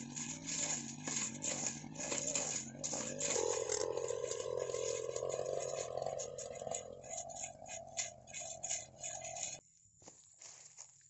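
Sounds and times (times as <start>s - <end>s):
brush cutter engine: 0.0s - 9.6s
brush cutter swishing through grass: 0.0s - 9.6s.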